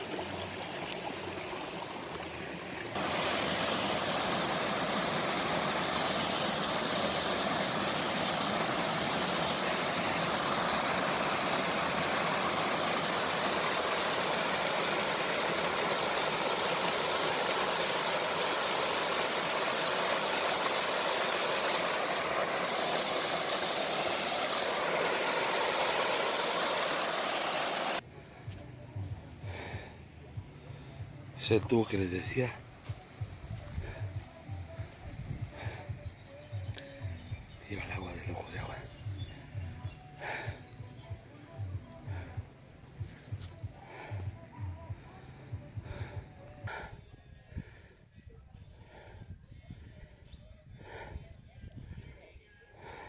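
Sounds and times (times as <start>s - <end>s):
water cascading over rocks: 0.0s - 28.0s.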